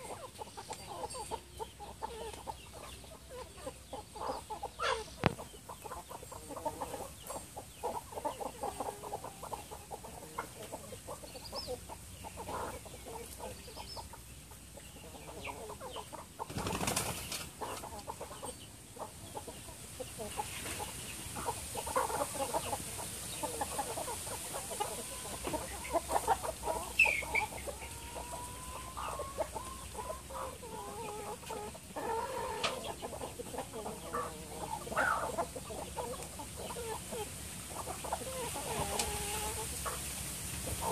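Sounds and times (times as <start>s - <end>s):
chickens clucking: 0.0s - 40.9s
wings flapping: 16.5s - 17.5s.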